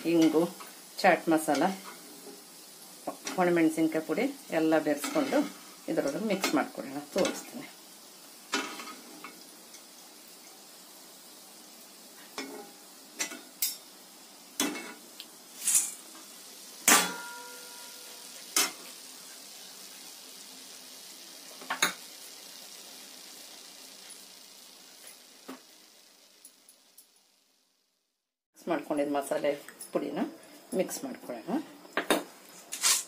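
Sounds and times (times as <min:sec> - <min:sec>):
hot oil sizzling: 0:00.0 - 0:33.0
ringing clang of steel: 0:16.9 - 0:18.0.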